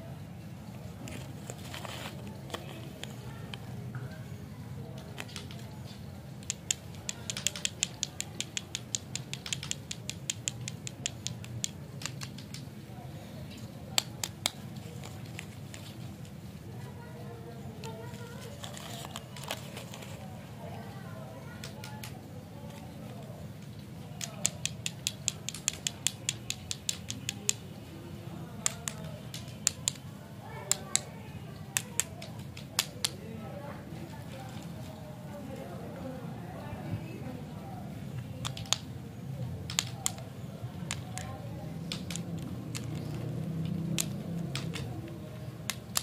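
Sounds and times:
rapid sharp clicks: 0:05.0 - 0:12.8, 0:24.2 - 0:27.7, 0:28.6 - 0:30.1, 0:31.8 - 0:33.2, 0:38.4 - 0:46.0.

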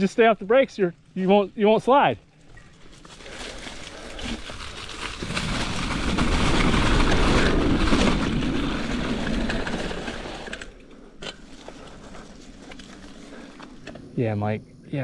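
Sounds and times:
bike tyres churning through sand: 0:02.8 - 0:10.6, 0:11.4 - 0:13.8
bike frame rattling and clicking: 0:04.2 - 0:11.5.

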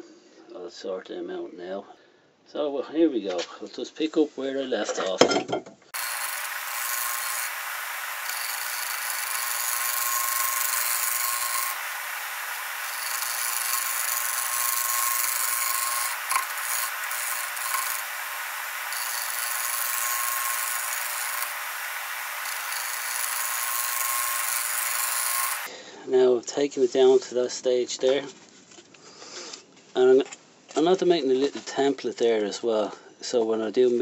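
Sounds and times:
lathe tool scraping wood: 0:06.0 - 0:25.7.

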